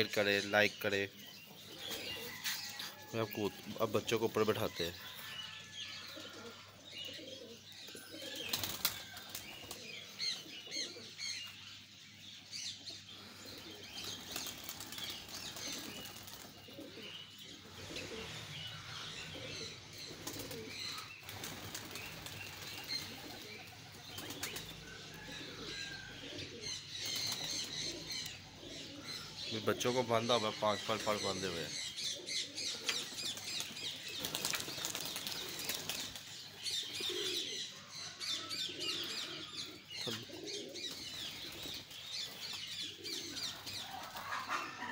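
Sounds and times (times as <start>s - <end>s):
pigeons chirping and cooing: 0.0s - 44.9s
pigeon wings flapping: 8.4s - 9.9s, 14.1s - 16.6s, 21.2s - 24.7s, 33.2s - 36.2s.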